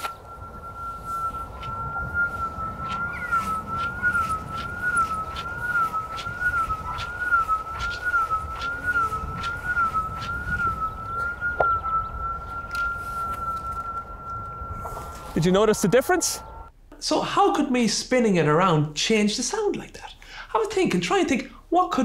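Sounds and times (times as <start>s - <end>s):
wavering electronic tone: 0.0s - 16.7s.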